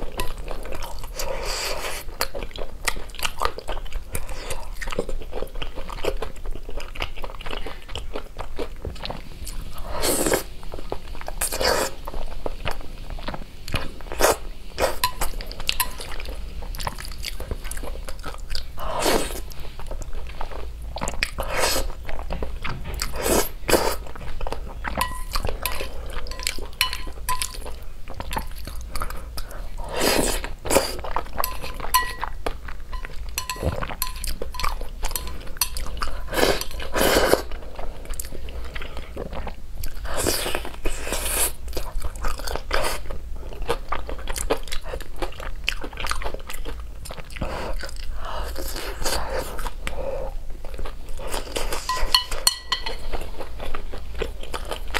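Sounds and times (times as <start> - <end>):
person chewing: 0.0 - 54.9
person slurping noodles: 29.8 - 31.0
chopsticks clicking on plate: 33.0 - 35.9.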